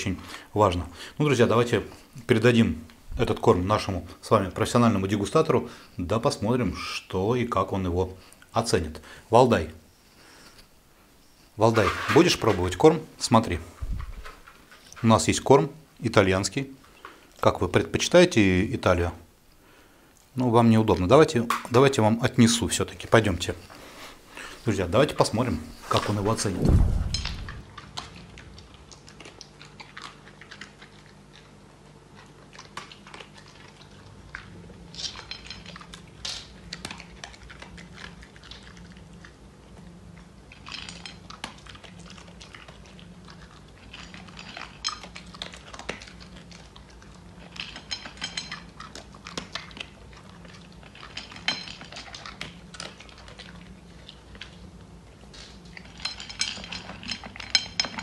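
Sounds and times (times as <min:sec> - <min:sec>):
dog crunching kibble: 0:27.6 - 0:58.0
kibble clinking on plate: 0:55.8 - 0:58.0.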